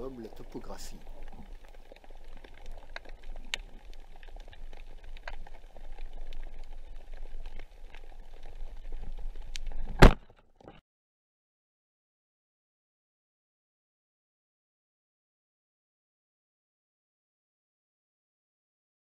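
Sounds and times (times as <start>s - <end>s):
crackling clicks: 0.0s - 10.8s.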